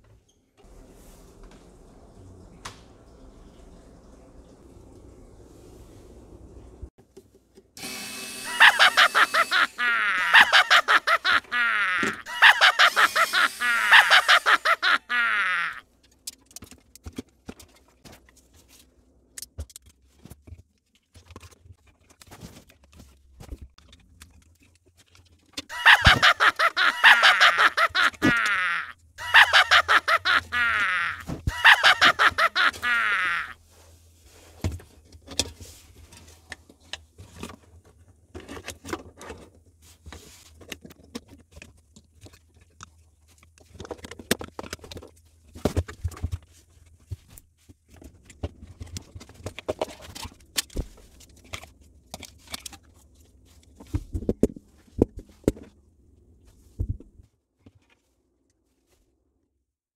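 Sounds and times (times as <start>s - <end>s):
comic pulsing squawks: 8.4s - 15.8s, 25.7s - 33.6s
hands handling plastic parts: 34.4s - 55.8s.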